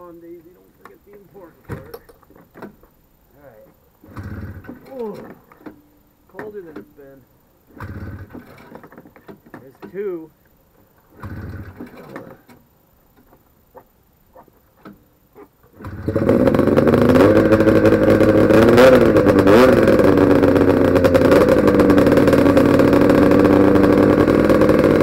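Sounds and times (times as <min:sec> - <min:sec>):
snowmobile engine starting and idling: 0:04.0 - 0:07.1, 0:07.7 - 0:09.9, 0:11.0 - 0:12.6, 0:15.7 - 0:25.0.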